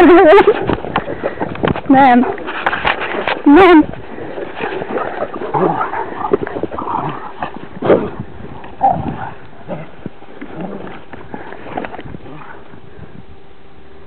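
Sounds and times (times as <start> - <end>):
dogs growling and barking: 2.2 - 12.8.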